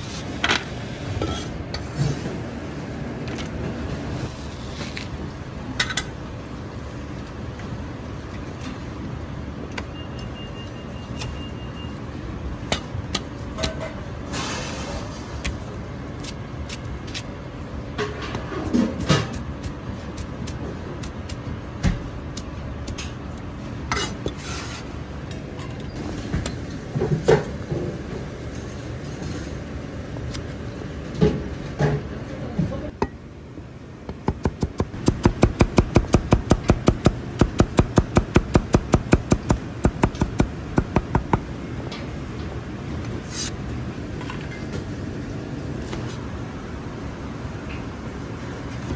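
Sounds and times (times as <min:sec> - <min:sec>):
cleaver chopping on plastic board: 0:34.1 - 0:41.5.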